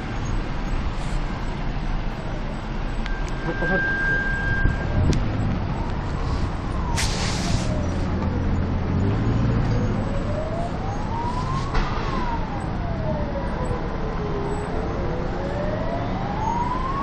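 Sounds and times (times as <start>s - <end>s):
road traffic rumble: 0.0s - 17.0s
emergency siren wailing: 2.0s - 17.0s
brief hiss: 7.0s - 7.8s.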